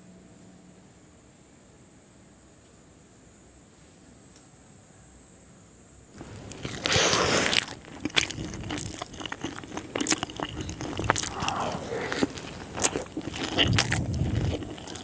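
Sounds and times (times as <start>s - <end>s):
faint hiss: 1.0s - 7.8s, 11.0s - 13.0s
loud bite into noodles: 6.2s - 15.0s
wet chewing: 6.2s - 15.0s.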